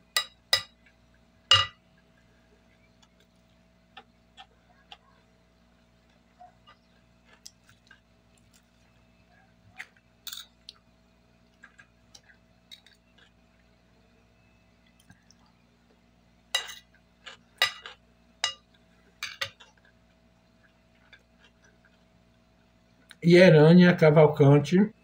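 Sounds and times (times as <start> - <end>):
faint chewing: 1.9 - 14.1, 14.8 - 16.1, 16.8 - 23.2
clinks of cutlery: 10.3 - 10.5, 16.6 - 16.9, 17.6 - 18.6, 19.2 - 19.7.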